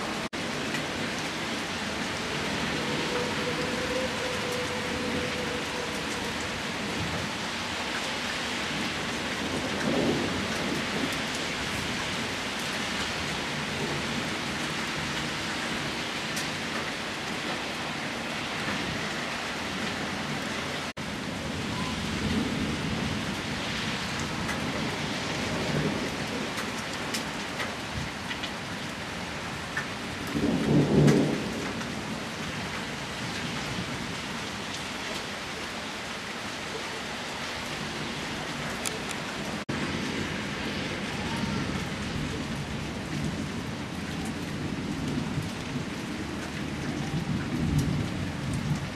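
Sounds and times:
steady rain: 0:00.0 - 0:48.9
thunder rumbles: 0:08.8 - 0:12.4, 0:30.2 - 0:34.5, 0:39.5 - 0:48.9.

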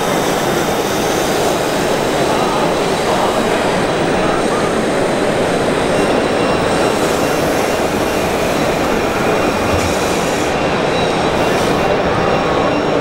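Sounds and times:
din of busy exhibition hall: 0:00.0 - 0:13.0.

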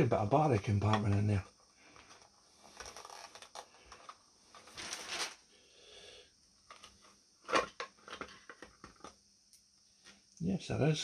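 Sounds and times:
wires rustling: 0:00.9 - 0:05.4.

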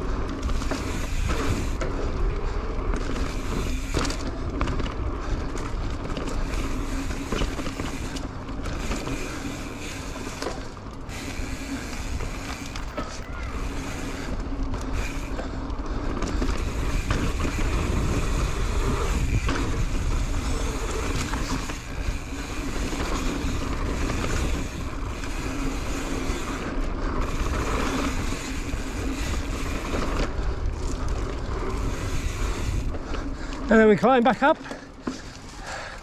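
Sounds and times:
bike tyre rumble on dirt: 0:00.0 - 0:36.0
wind on microphone: 0:16.6 - 0:26.6.

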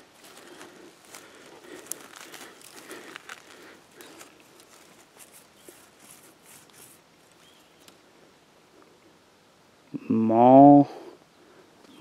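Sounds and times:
leaves and twigs rustling: 0:00.0 - 0:09.2.

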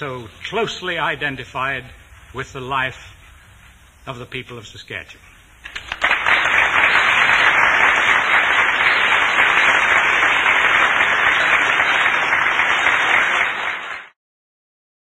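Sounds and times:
audience applauding: 0:05.6 - 0:14.2.

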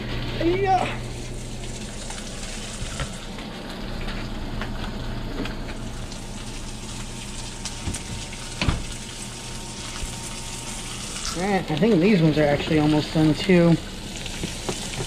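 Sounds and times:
fish sizzling in skillets: 0:00.0 - 0:15.0.

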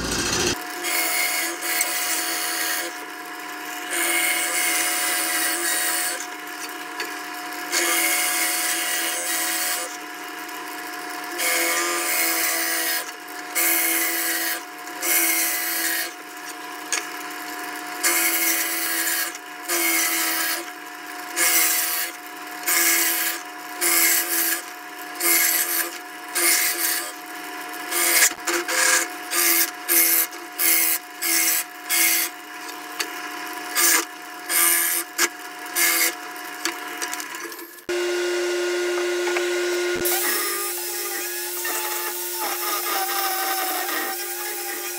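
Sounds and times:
drill press boring into wood: 0:00.0 - 0:03.0, 0:37.2 - 0:44.9.

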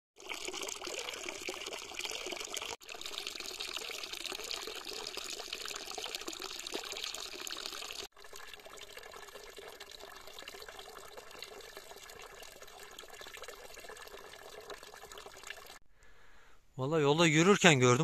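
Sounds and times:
running water trickling: 0:00.2 - 0:15.8.

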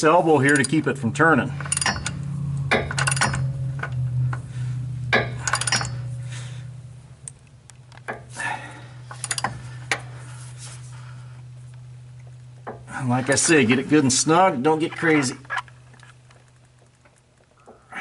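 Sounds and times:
steady low hum: 0:00.0 - 0:18.0
ratchet wrench clicking: 0:01.6 - 0:04.0, 0:05.1 - 0:06.0.

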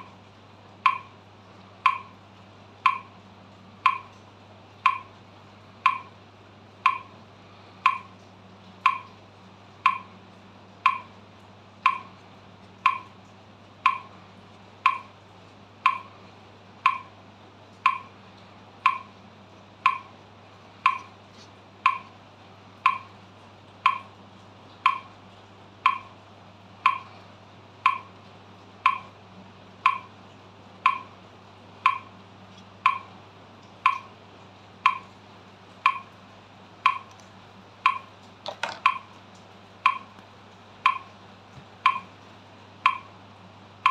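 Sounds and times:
metronome clicking: 0:00.8 - 0:01.1, 0:01.8 - 0:02.1, 0:02.8 - 0:03.1, 0:03.8 - 0:04.2, 0:04.8 - 0:05.1, 0:05.8 - 0:06.1, 0:06.9 - 0:07.1, 0:07.8 - 0:08.1, 0:08.9 - 0:09.2, 0:09.8 - 0:10.1, 0:10.9 - 0:11.1, 0:11.8 - 0:12.1, 0:12.8 - 0:13.1, 0:13.9 - 0:14.1, 0:14.9 - 0:15.1, 0:15.8 - 0:16.1, 0:16.8 - 0:17.1, 0:17.8 - 0:18.1, 0:18.8 - 0:19.1, 0:19.8 - 0:20.1, 0:20.8 - 0:21.1, 0:21.8 - 0:22.1, 0:22.8 - 0:23.1, 0:23.8 - 0:24.1, 0:24.8 - 0:25.1, 0:25.8 - 0:26.1, 0:26.8 - 0:27.1, 0:27.9 - 0:28.1, 0:28.8 - 0:29.1, 0:29.8 - 0:30.1, 0:30.8 - 0:31.1, 0:31.8 - 0:32.1, 0:32.8 - 0:33.1, 0:33.8 - 0:34.1, 0:34.8 - 0:35.1, 0:35.8 - 0:36.1, 0:36.8 - 0:37.2, 0:37.8 - 0:39.1, 0:39.9 - 0:40.2, 0:40.8 - 0:41.1, 0:41.8 - 0:42.1, 0:42.8 - 0:43.1.

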